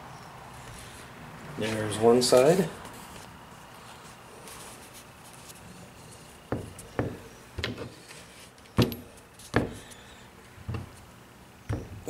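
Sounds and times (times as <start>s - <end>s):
knocks on wooden workbench: 6.5s - 7.8s, 9.6s - 9.8s, 11.7s - 12.0s.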